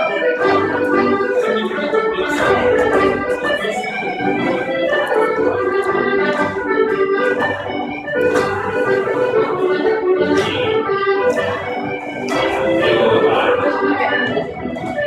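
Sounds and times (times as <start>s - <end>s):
instrumental folk dance music: 0.0s - 15.0s.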